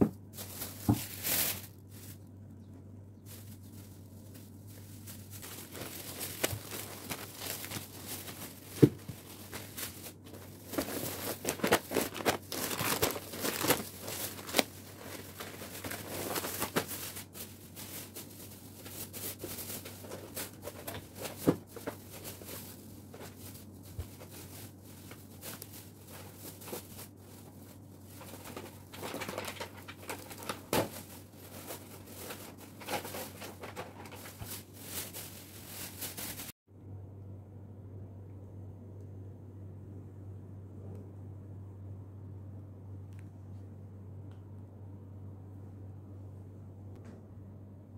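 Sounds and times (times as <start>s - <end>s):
plastic bags rustling: 0.0s - 36.6s.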